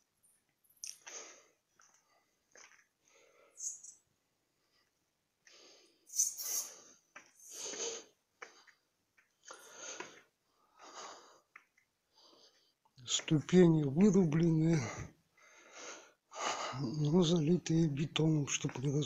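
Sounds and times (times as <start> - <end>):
person breathing heavily: 6.6 - 8.2, 9.5 - 11.5, 14.7 - 17.0.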